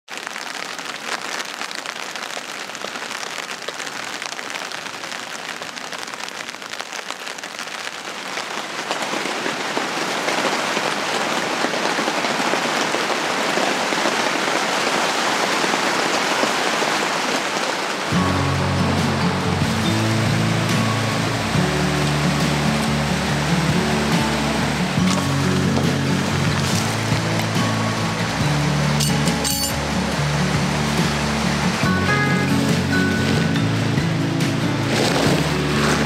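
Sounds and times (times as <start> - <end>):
rain pattering on fabric shelter: 0.0 - 36.0
music: 18.1 - 36.0.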